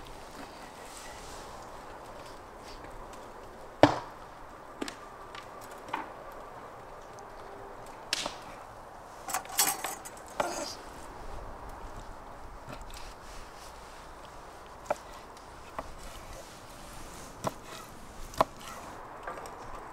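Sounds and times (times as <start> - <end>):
metal skewers clacking: 9.2 - 10.8
metal on metal rattle: 9.3 - 10.7.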